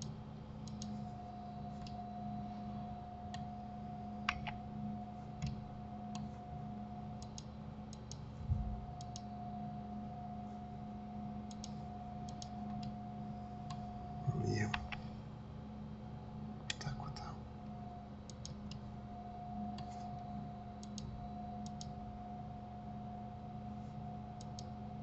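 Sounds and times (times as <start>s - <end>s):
mouse and keyboard clicking: 0.0s - 1.0s, 4.2s - 4.6s, 11.5s - 12.9s, 14.6s - 15.1s, 20.8s - 21.9s, 24.4s - 24.7s
electrical hum: 0.0s - 25.0s.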